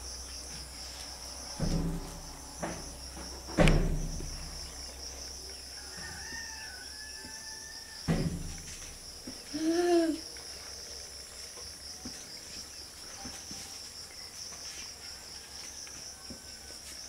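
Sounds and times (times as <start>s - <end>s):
insects chirring: 0.0s - 17.0s
dull knocks: 1.6s - 4.8s, 8.1s - 9.0s.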